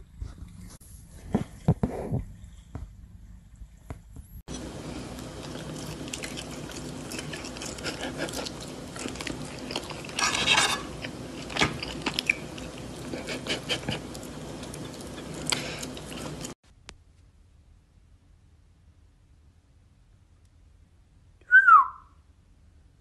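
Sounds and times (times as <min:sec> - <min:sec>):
cat chewing food: 0:04.5 - 0:10.2, 0:10.9 - 0:16.6.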